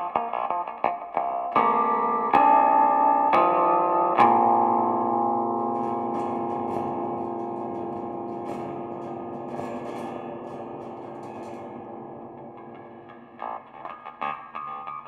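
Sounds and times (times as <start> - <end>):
metal strings ringing chord: 1.6 - 13.5.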